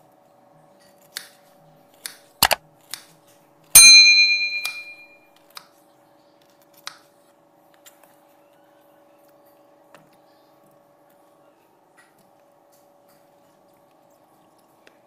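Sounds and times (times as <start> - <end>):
loud bell ding: 3.8 - 5.2.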